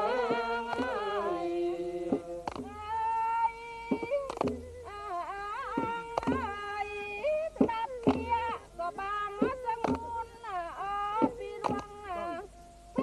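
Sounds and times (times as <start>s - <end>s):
person singing folk song: 0.0s - 13.0s
sharp clacks: 2.1s - 2.7s, 3.9s - 4.6s, 11.6s - 11.9s.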